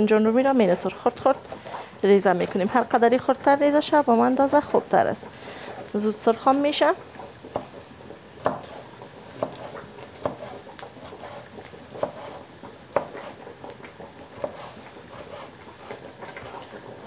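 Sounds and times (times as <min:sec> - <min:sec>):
knife chopping on wooden board: 0:07.5 - 0:07.8, 0:08.4 - 0:13.4, 0:14.3 - 0:15.5.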